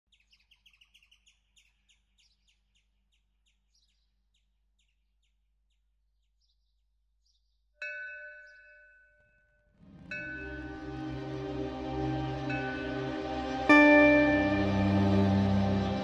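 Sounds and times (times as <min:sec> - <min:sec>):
bird chirping: 0:00.1 - 0:07.8.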